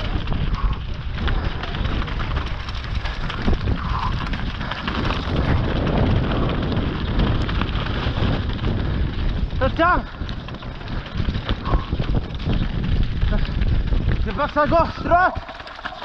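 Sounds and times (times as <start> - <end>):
bike rattling: 0.0 - 16.0
tyres crunching over rocks: 0.0 - 16.0
wind buffeting microphone: 0.0 - 16.0.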